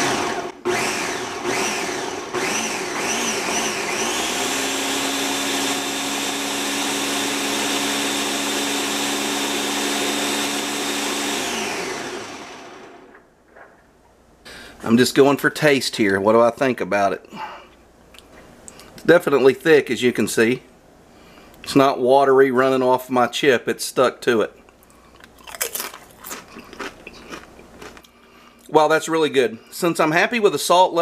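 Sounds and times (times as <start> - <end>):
blender motor pureeing: 0.0 - 13.1.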